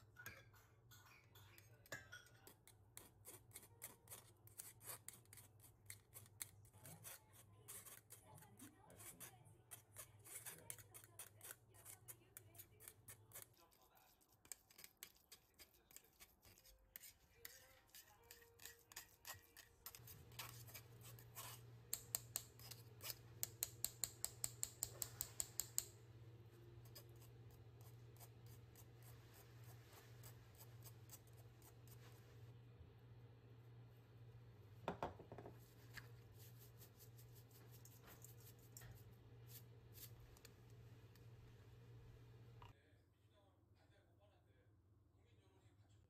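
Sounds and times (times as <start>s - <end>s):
spoon scraping through wire sieve: 2.4s - 25.8s, 35.8s - 41.3s.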